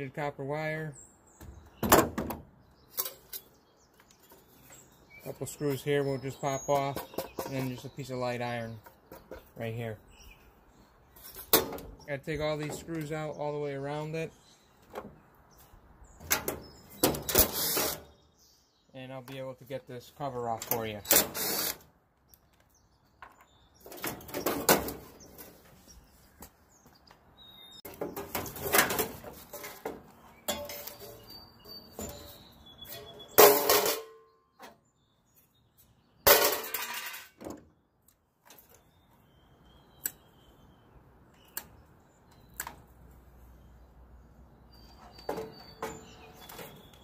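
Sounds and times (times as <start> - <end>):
cordless drill bursts: 21.3 - 21.8.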